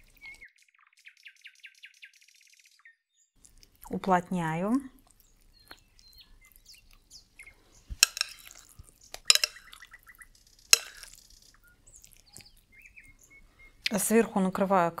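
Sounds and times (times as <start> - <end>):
kitchenware clinking: 7.9 - 9.8, 10.7 - 11.1.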